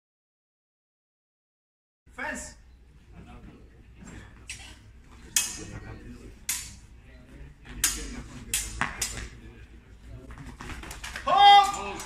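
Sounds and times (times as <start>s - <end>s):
steel blades clashing: 5.3s - 5.7s.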